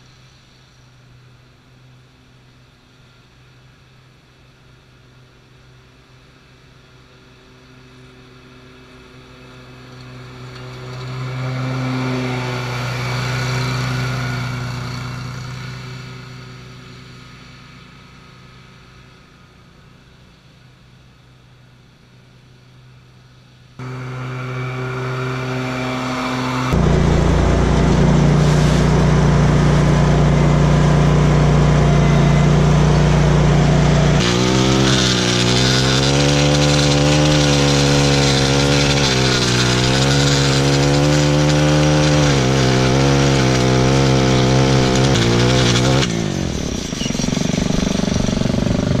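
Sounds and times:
mower engine running: 0:07.0 - 0:21.5, 0:23.8 - 0:49.0
edger small engine wavering: 0:07.5 - 0:19.8, 0:23.8 - 0:49.0.

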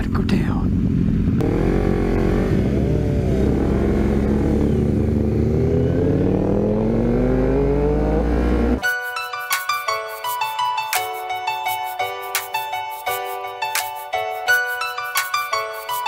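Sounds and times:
motorcycle engine accelerating: 0:00.7 - 0:08.8
piano music: 0:08.8 - 0:16.0.

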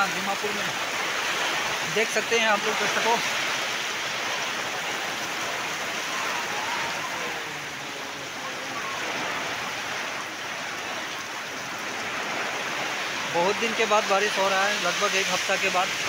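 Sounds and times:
heavy rain on wet ground: 0:00.0 - 0:16.0.

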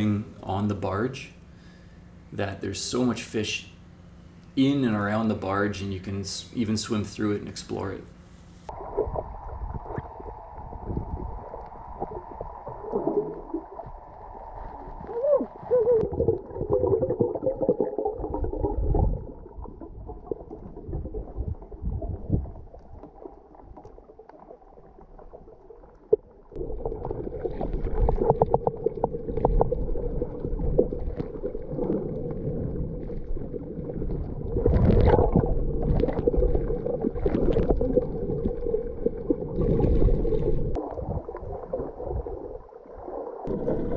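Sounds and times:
steady underwater hum: 0:00.0 - 0:43.9
underwater gurgling water: 0:08.7 - 0:43.9
water sloshing: 0:08.8 - 0:43.9.

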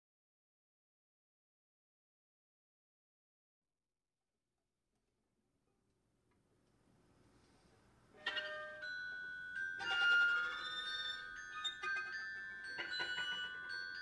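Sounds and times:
sustained high string tones: 0:08.2 - 0:14.0.

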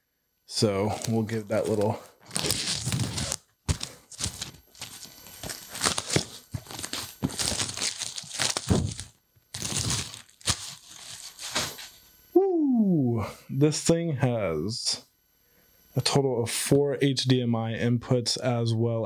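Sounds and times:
plastic shrink wrap tearing: 0:00.8 - 0:11.9.

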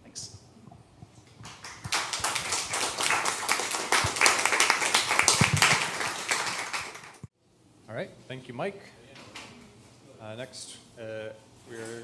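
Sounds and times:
audience applauding: 0:01.4 - 0:07.2.

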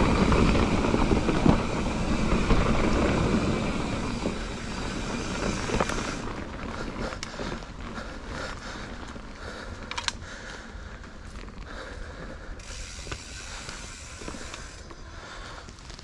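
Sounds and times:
tyres hissing on dirt: 0:00.0 - 0:06.4, 0:12.6 - 0:14.9
bike knocking and rattling: 0:00.0 - 0:15.0
bicycle freehub ratchet ticking: 0:00.2 - 0:06.3, 0:12.6 - 0:14.9.

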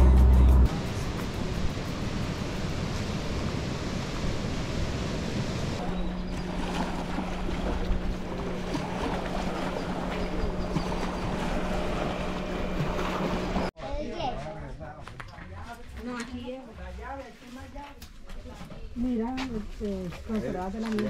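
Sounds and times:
steady low hum: 0:00.0 - 0:13.7
wind: 0:00.0 - 0:21.0
small waves lapping: 0:01.4 - 0:13.7.

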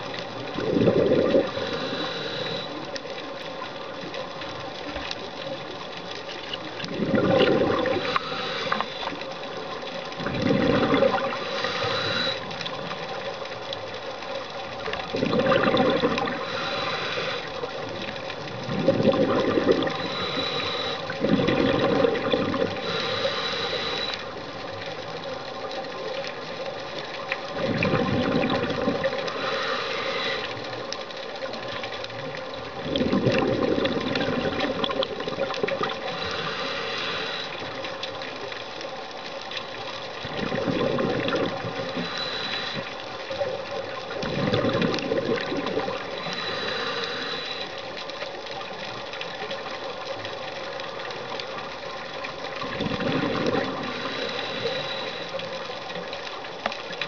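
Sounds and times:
exhaled bubbles rumbling: 0:00.0 - 0:02.7, 0:05.0 - 0:38.6, 0:39.6 - 0:57.0
steady mechanical hum: 0:01.4 - 0:06.6, 0:07.7 - 0:10.2, 0:11.0 - 0:14.6, 0:16.0 - 0:18.5, 0:19.4 - 0:25.4, 0:29.0 - 0:31.0, 0:35.8 - 0:38.4, 0:41.5 - 0:43.3, 0:45.8 - 0:48.4, 0:53.3 - 0:56.6.

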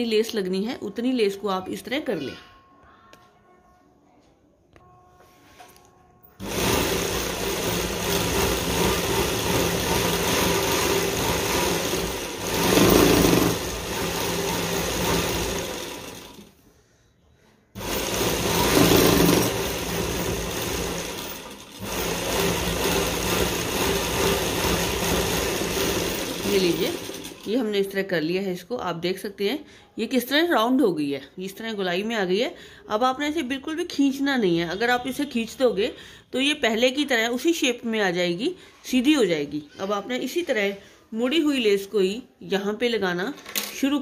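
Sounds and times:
sewing machine running: 0:06.4 - 0:16.6, 0:17.8 - 0:27.9.

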